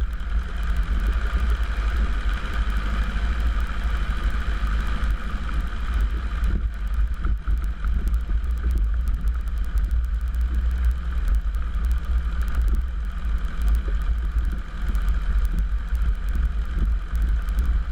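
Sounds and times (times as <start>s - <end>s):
propeller engine droning: 0.0s - 17.9s.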